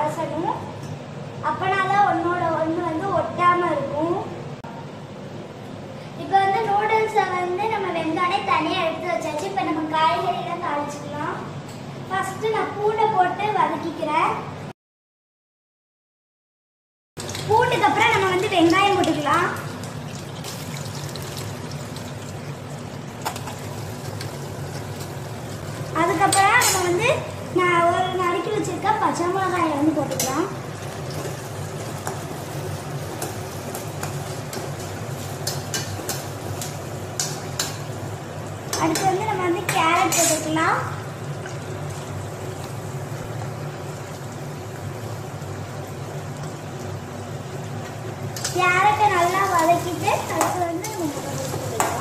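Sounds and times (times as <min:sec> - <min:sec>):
water draining through colander: 0:17.2 - 0:26.0
vegetables sizzling in a pan: 0:17.2 - 0:52.0.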